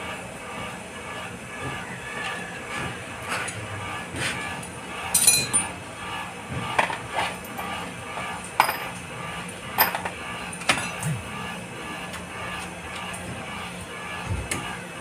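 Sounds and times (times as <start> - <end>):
wrench and bolts clinking: 5.1 - 5.7.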